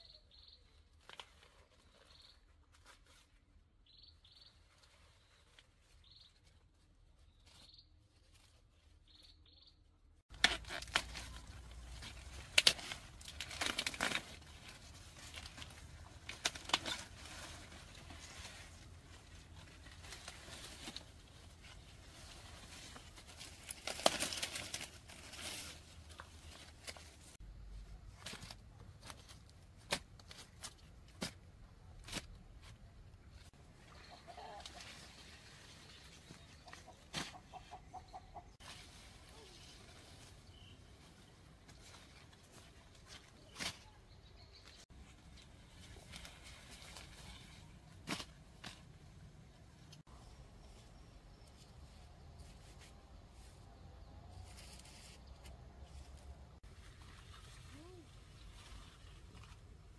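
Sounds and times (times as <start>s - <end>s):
corn leaves rustling and crackling: 0.6s - 3.6s, 4.2s - 9.3s, 10.3s - 59.9s
corn ears snapping off stalks: 10.3s - 14.5s, 23.4s - 24.9s, 43.1s - 43.9s.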